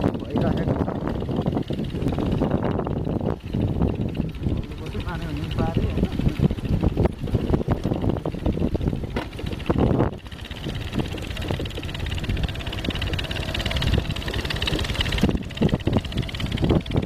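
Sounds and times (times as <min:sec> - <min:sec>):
motorcycle engine running: 0:00.0 - 0:17.0
knocks on rough track: 0:09.1 - 0:10.0.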